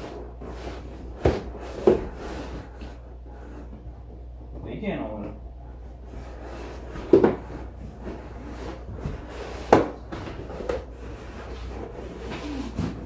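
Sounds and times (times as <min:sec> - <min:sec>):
cardboard box scraping: 0:06.2 - 0:13.0.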